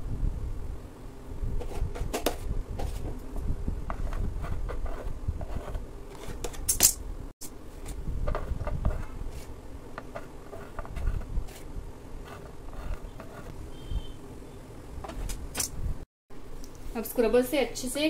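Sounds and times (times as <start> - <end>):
palette knife scraping icing: 12.2 - 13.5.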